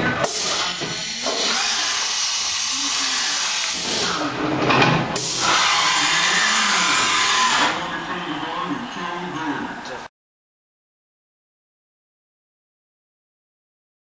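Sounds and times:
machining centre whining hiss: 0.2s - 9.3s.

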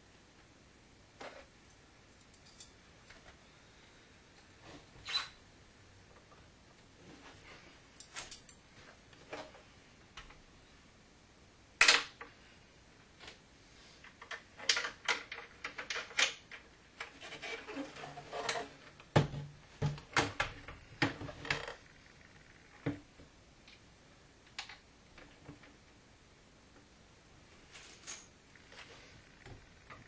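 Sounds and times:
wood and metal clicks and knocks: 14.2s - 16.7s.

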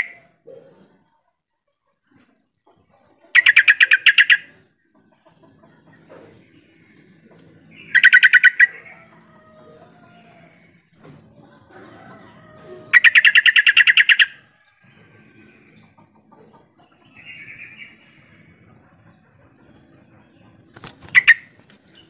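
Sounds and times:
bird chirping: 3.3s - 4.7s, 5.8s - 9.1s, 10.0s - 22.0s.

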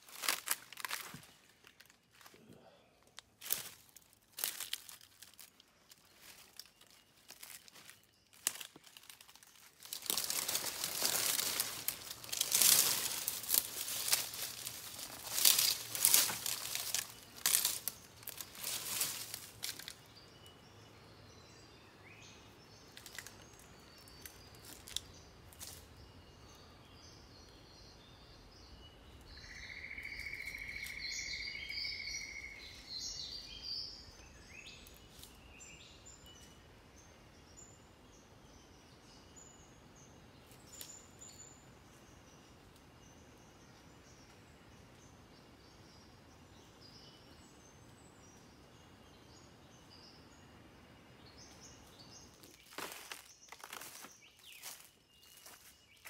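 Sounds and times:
footsteps crunching through dry leaves: 0.0s - 2.4s, 3.4s - 20.0s, 52.4s - 56.0s
birds chirping: 0.0s - 56.0s.

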